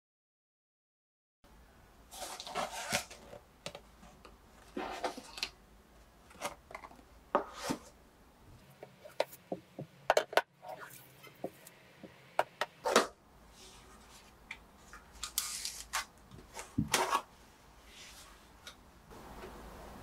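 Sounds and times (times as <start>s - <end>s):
boxes clicking and knocking: 8.8s - 10.6s.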